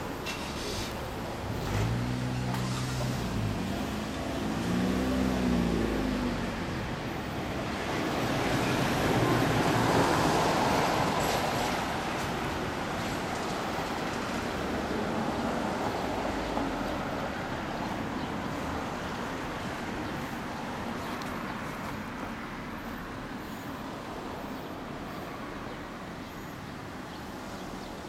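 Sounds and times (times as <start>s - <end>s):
vehicle passing: 1.5s - 6.7s.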